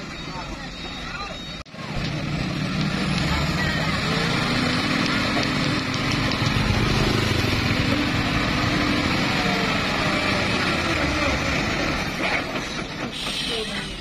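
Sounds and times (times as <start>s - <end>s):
truck diesel engine under load: 0.0s - 14.0s.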